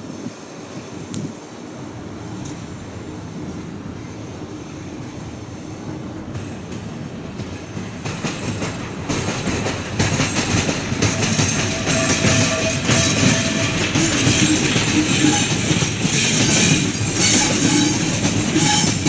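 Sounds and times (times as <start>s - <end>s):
train running on tracks: 0.0s - 19.0s
wheels clicking over rails: 6.4s - 19.0s.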